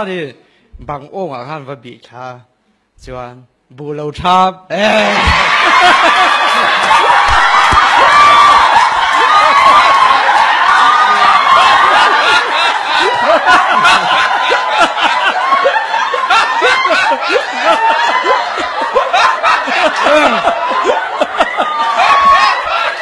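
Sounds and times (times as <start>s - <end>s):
audience laughing: 4.8s - 23.0s.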